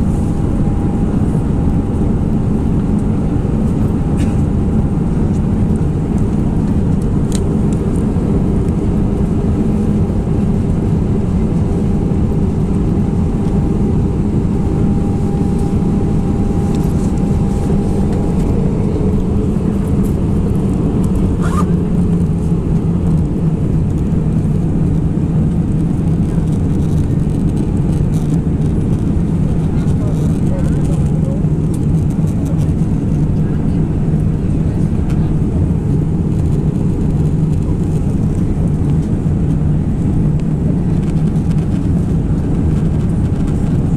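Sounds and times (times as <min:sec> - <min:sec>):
rushing air: 0:00.0 - 0:05.1, 0:09.6 - 0:24.9
low rumble of jet engines: 0:00.0 - 0:43.9.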